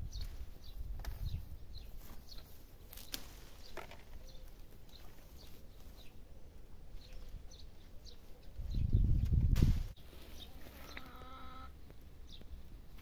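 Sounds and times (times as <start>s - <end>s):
small birds chirping: 0.0s - 13.0s
low wind rumble: 8.5s - 10.0s.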